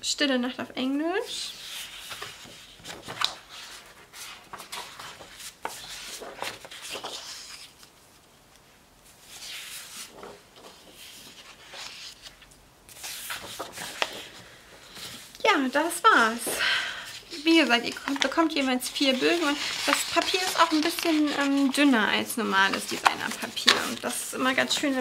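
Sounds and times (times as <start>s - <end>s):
paper sheets rustling: 1.4s - 8.3s, 9.1s - 25.0s.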